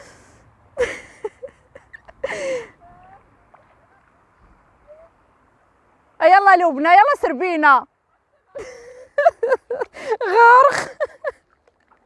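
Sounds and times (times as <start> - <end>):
women exclaiming and gasping: 2.2 - 3.0, 9.9 - 11.2.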